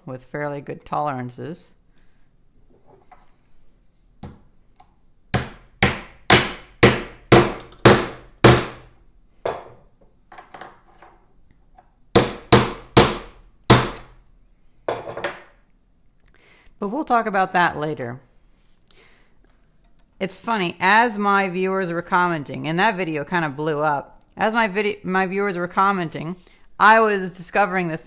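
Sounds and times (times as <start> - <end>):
hammer strikes: 5.3 - 8.9, 12.1 - 14.1.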